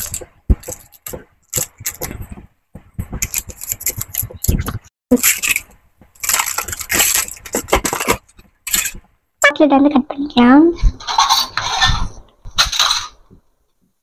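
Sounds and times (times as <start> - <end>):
foil wrapper crinkling: 3.2 - 9.0.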